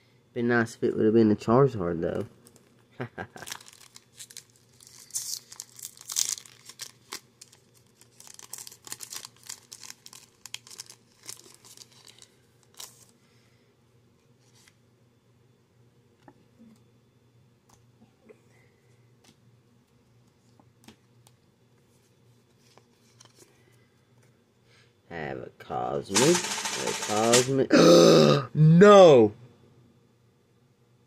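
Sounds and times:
foil wrapper tearing and crinkling: 3.4s - 13.1s.

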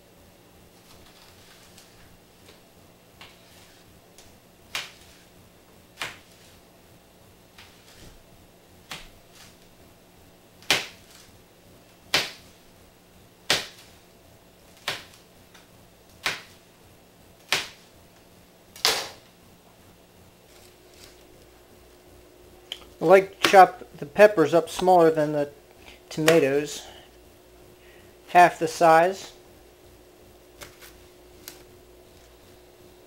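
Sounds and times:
knife chopping on plastic board: 6.0s - 6.4s, 10.6s - 11.0s, 13.5s - 13.9s, 16.2s - 16.6s, 17.4s - 17.8s.

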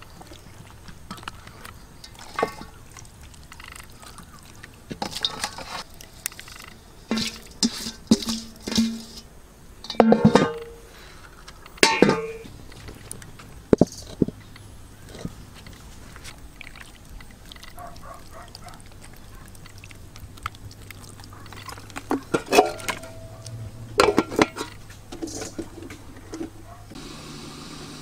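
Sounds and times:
low steady hum: 0.0s - 28.0s
pots and dishes clinking: 1.1s - 2.8s, 4.9s - 5.8s, 6.5s - 9.2s, 9.8s - 11.2s, 11.8s - 12.5s, 21.4s - 26.7s.

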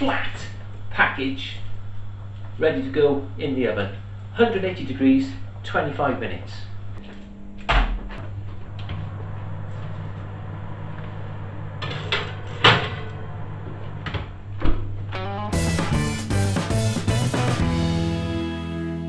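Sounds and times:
steady low hum: 0.0s - 16.4s
baking tray sliding onto rack: 8.9s - 14.3s
music: 15.1s - 19.0s.

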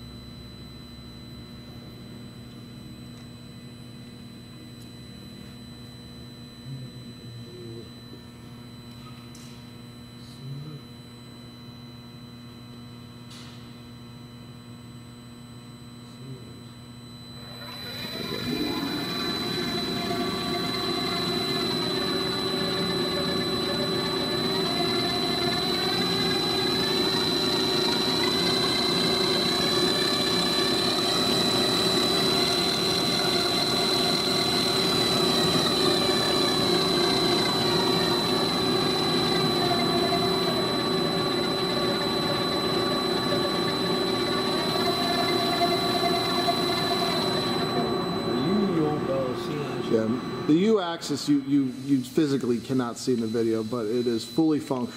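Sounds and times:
grinder motor humming and whining: 17.0s - 50.9s.

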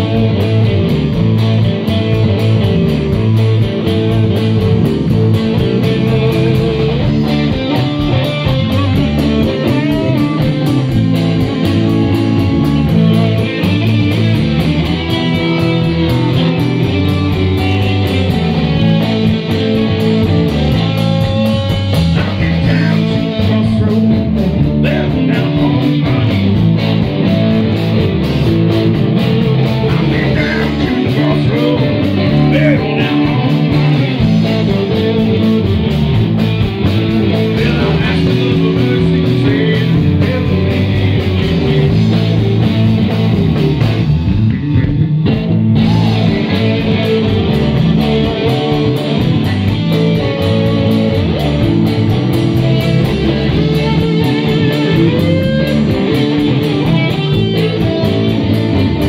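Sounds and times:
electric guitars: 0.0s - 59.0s
lead guitar bending notes: 0.0s - 59.0s
steady drum beat: 0.0s - 59.0s.

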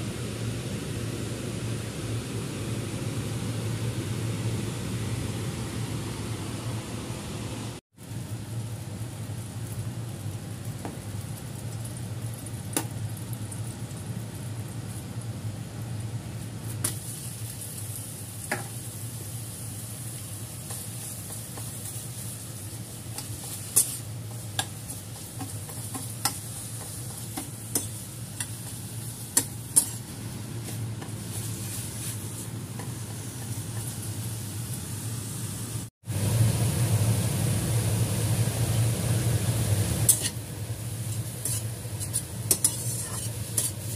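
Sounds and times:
steady low hum: 0.0s - 9.6s
meat sizzling in a wok: 7.9s - 43.9s.

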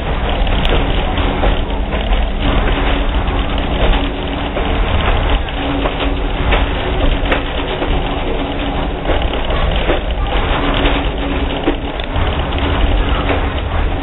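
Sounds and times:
train car rumbling on track: 0.0s - 14.0s
wheel clicks: 0.0s - 14.0s.

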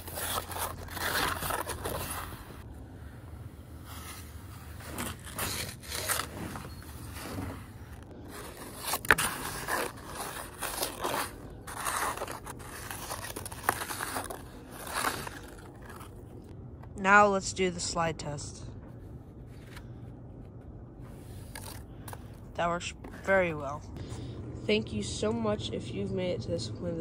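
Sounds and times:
snow being scraped and crunched: 3.7s - 16.1s.

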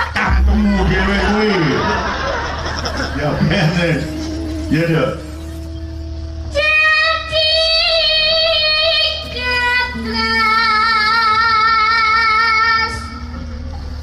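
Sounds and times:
woman singing long held notes: 3.9s - 13.3s.

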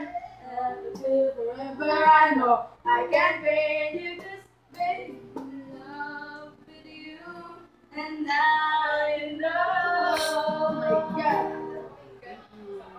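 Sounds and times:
young voices singing: 0.0s - 12.9s
strummed acoustic guitar: 10.0s - 12.0s.

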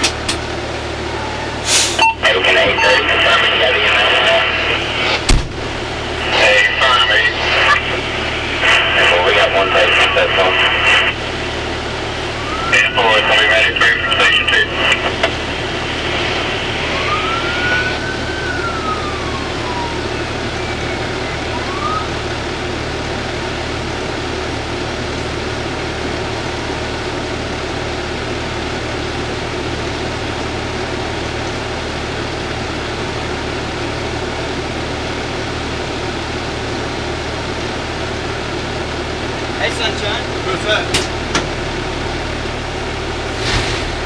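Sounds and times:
vehicle engine idling: 0.0s - 17.2s, 18.1s - 44.0s
emergency vehicle siren: 0.7s - 4.9s, 5.8s - 25.2s.

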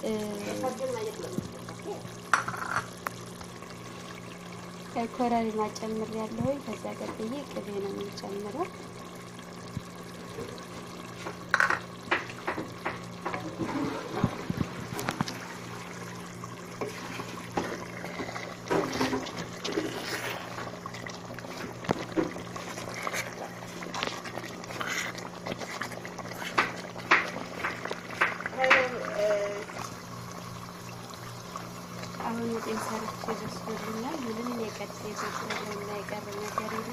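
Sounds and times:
stew simmering with pops: 0.0s - 36.9s
wooden spoon stirring: 16.8s - 29.9s, 32.1s - 36.9s.

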